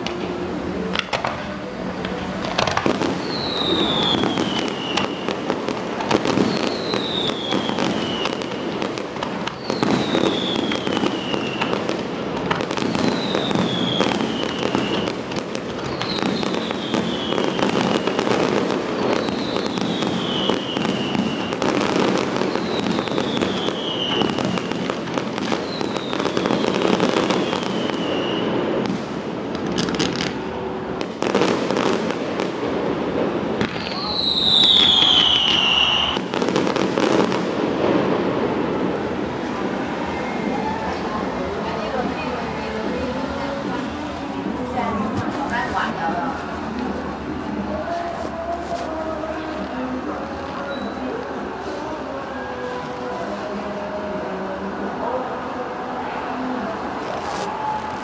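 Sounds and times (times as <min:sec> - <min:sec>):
fireworks bangs and crackles: 0:00.0 - 0:58.0
falling firework whistle: 0:02.8 - 0:12.0, 0:12.6 - 0:29.1, 0:33.6 - 0:37.4.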